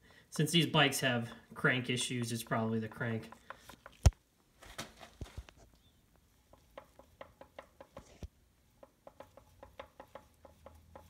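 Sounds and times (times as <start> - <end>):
light clicks and taps: 1.0 - 4.1.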